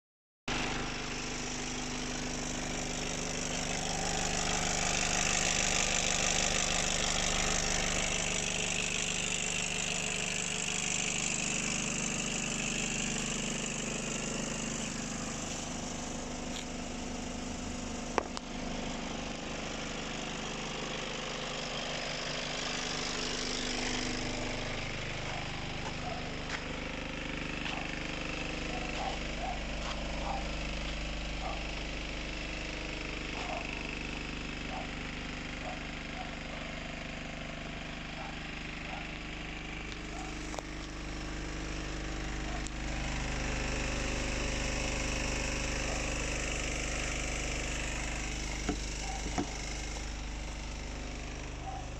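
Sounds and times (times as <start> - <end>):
diesel engine idling: 0.5 - 51.9.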